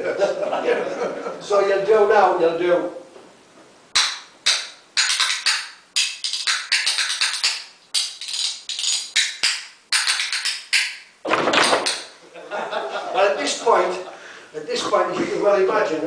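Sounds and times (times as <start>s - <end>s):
spoons clacking rhythmically: 3.9s - 12.2s.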